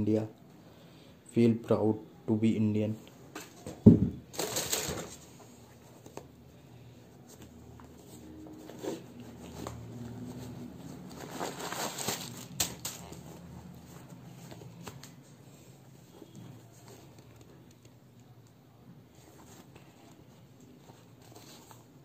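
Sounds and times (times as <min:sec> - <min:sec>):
tissue paper rustling: 0:04.3 - 0:06.1, 0:08.0 - 0:14.8.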